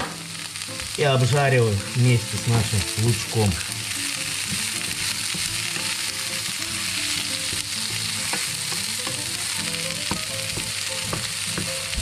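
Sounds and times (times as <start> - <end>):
vegetables sizzling in a pan: 0.0 - 12.0
wooden spatula knocking on pan: 4.4 - 5.6, 7.4 - 12.0.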